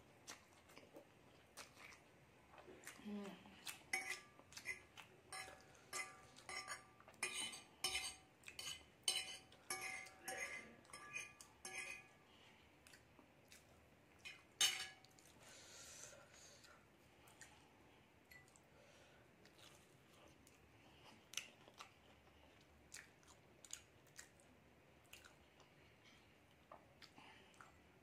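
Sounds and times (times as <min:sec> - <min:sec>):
fork clinking on glass plate: 0:05.3 - 0:12.1, 0:14.3 - 0:15.0.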